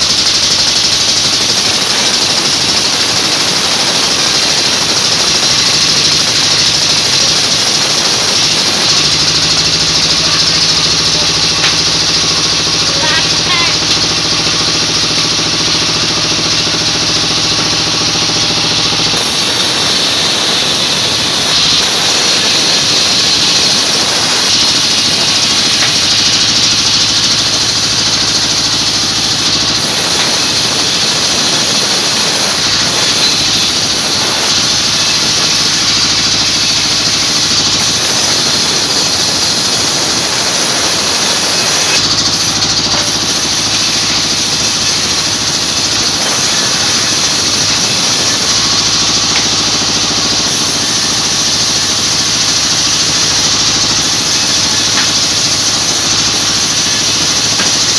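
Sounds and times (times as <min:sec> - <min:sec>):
saw blade hissing through wood: 0:00.0 - 0:57.9
sawmill motor hum: 0:00.0 - 0:57.9.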